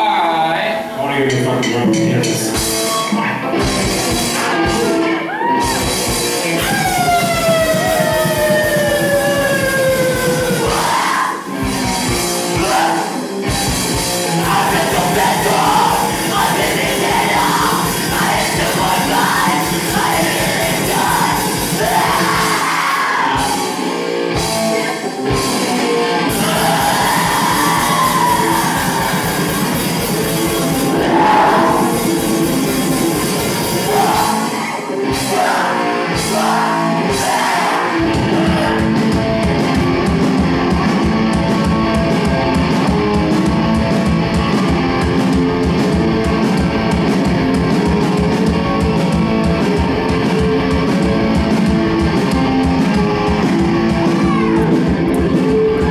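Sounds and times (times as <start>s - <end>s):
live rock band: 0.0s - 55.9s
person singing and yelling: 4.3s - 11.6s, 12.4s - 13.4s, 14.3s - 24.0s, 26.2s - 39.4s, 52.9s - 55.9s.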